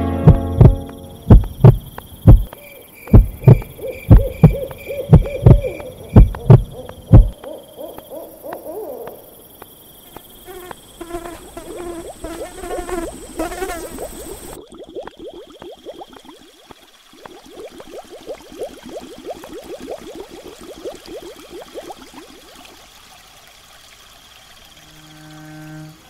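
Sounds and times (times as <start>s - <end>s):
deep heartbeat-like thumps: 0.2s - 7.4s
rapid chirping calls: 0.3s - 9.6s
wavering calls: 1.5s - 9.4s
owl hoots: 2.6s - 9.3s.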